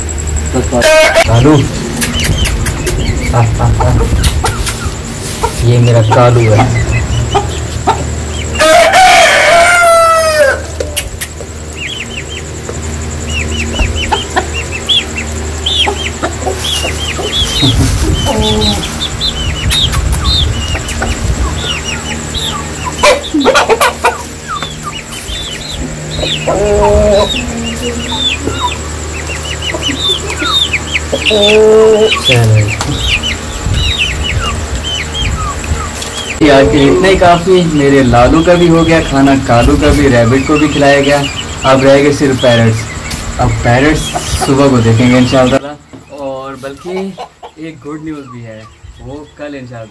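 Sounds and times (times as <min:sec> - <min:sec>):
low hum: 0:00.0 - 0:45.9
chicken calls: 0:00.0 - 0:49.9
chicks peeping: 0:00.0 - 0:49.9
rooster crowing: 0:00.7 - 0:01.6, 0:06.4 - 0:11.0, 0:20.6 - 0:33.6.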